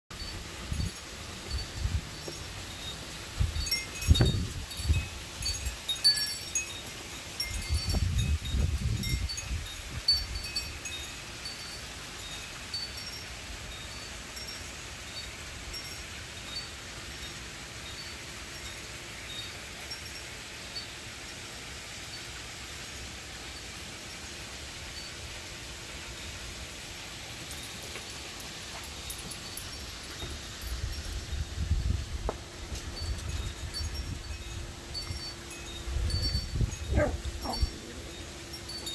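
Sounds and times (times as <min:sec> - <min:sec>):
wind chimes tinkling: 0:00.1 - 0:38.9
wind rumble on microphone: 0:00.2 - 0:02.6, 0:03.2 - 0:05.8, 0:07.4 - 0:10.9, 0:30.2 - 0:38.2.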